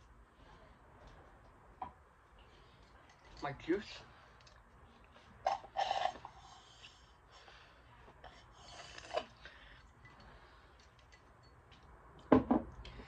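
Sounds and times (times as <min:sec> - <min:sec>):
person sipping from a glass: 0:08.2 - 0:09.5.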